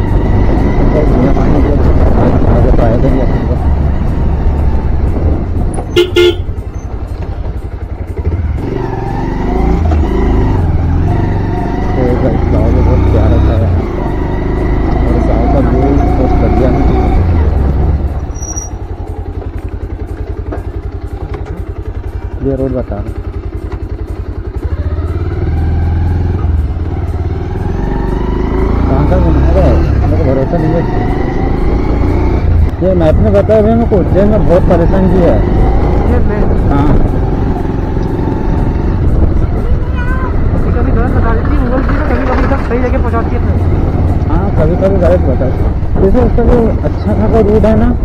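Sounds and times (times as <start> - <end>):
motorcycle engine running: 0.0 - 48.0
motorcycle horn beeping: 5.7 - 7.0.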